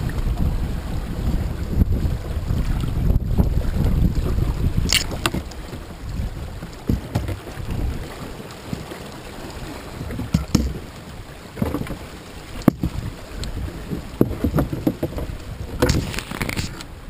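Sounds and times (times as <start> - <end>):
sharp knocks and cracks: 10.2 - 10.8, 13.9 - 16.8
branches rustling and scraping: 11.6 - 16.9.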